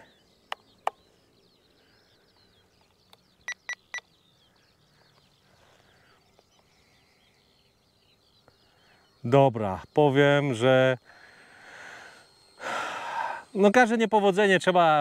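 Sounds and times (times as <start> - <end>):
faint birdsong: 0.0 - 15.0
sharp clicks: 0.5 - 1.0
short electronic beeps: 3.5 - 4.1.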